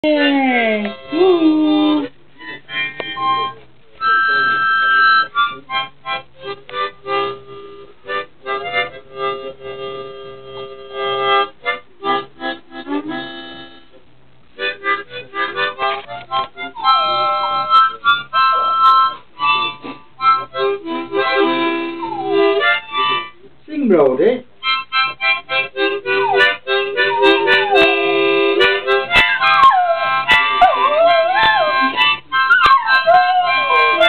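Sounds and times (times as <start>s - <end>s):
harmonica playing chords: 0.0s - 14.0s, 14.6s - 23.5s, 24.6s - 34.0s
puppy howling: 21.9s - 22.7s, 26.0s - 34.0s.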